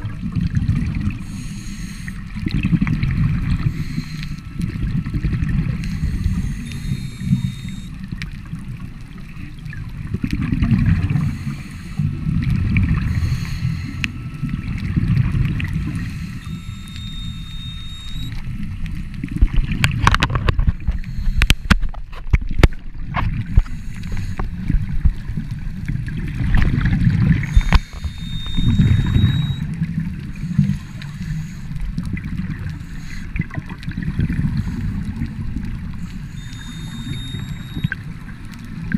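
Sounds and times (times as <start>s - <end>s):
underwater exhaled bubbles gurgling: 0.0s - 38.9s.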